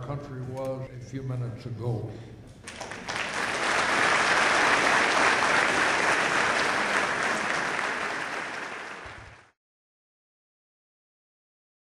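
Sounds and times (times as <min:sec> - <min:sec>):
crowd clapping: 0:02.6 - 0:09.6.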